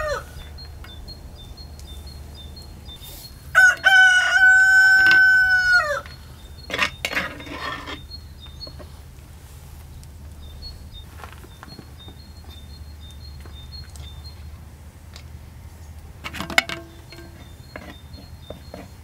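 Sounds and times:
rooster crowing: 0.0s - 1.5s, 2.3s - 6.4s.

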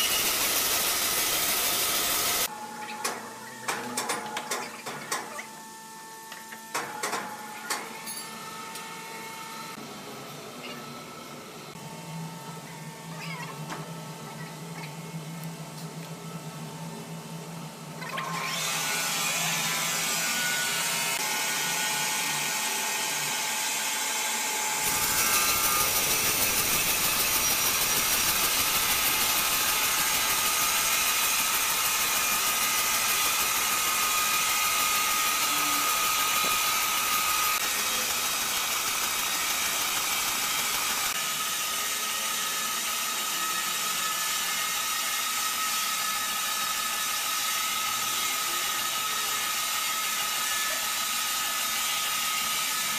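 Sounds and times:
band saw cutting timber: 0.0s - 2.5s, 18.1s - 52.9s.

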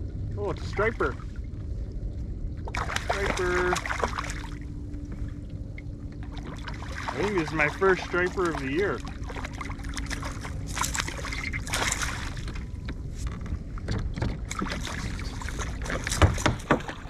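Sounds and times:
steady low rumble: 0.0s - 17.0s
fish splashing in water: 2.7s - 4.6s, 6.3s - 12.7s.

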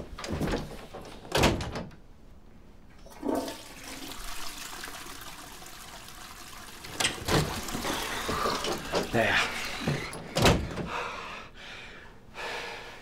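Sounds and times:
toilet flushing: 3.0s - 10.4s
door thudding shut: 9.8s - 10.9s.

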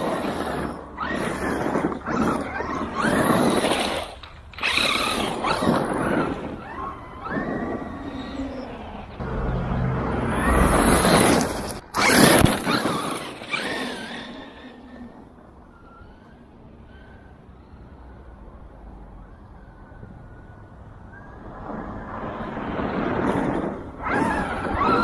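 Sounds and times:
tyres on gravel: 0.0s - 15.1s.

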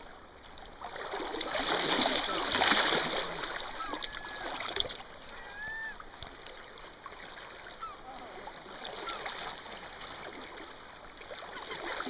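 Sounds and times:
fish splashing in water: 0.8s - 5.0s.

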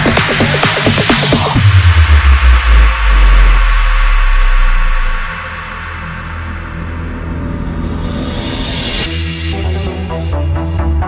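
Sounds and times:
pulsing dance beat: 0.0s - 6.5s
sustained bass: 0.0s - 11.0s
rising noise sweep: 1.4s - 9.1s.

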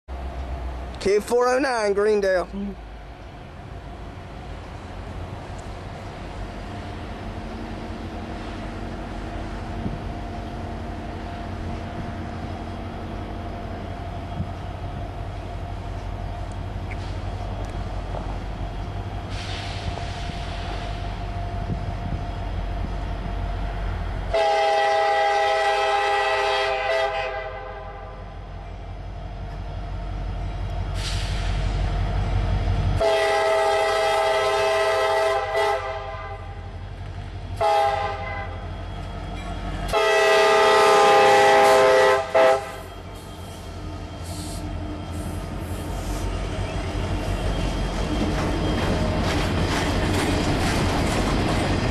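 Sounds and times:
locomotive diesel engines rumbling: 0.1s - 51.9s
train air horn: 24.3s - 28.2s, 33.0s - 36.6s, 37.6s - 38.6s, 39.9s - 46.2s.

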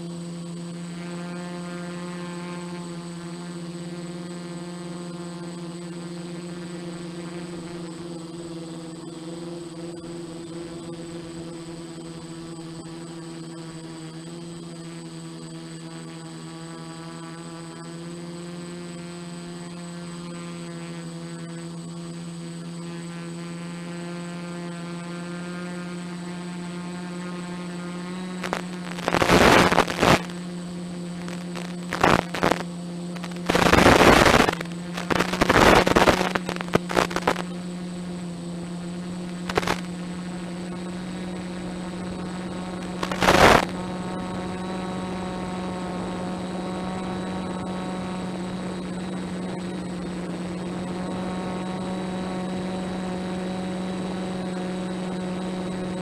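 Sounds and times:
buzzing hum: 0.0s - 56.0s
bursts of hissing static: 28.2s - 56.0s.

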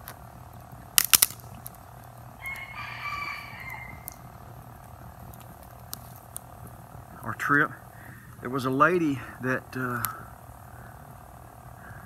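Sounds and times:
sharp snaps: 0.0s - 7.3s, 9.8s - 10.3s
rooster crowing: 2.3s - 4.6s.

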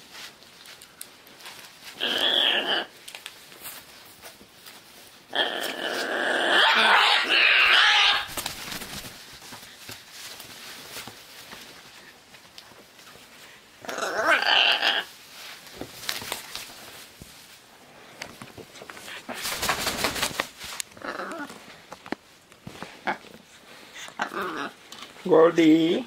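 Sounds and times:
macaw calling: 5.6s - 8.4s.

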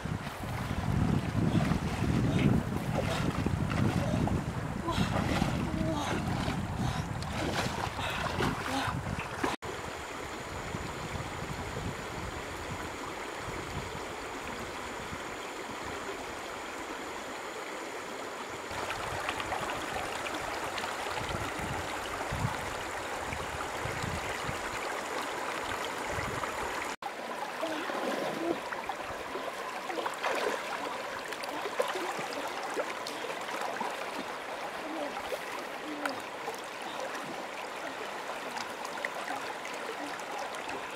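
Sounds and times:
legs wading through water: 0.0s - 9.6s, 24.6s - 40.9s.

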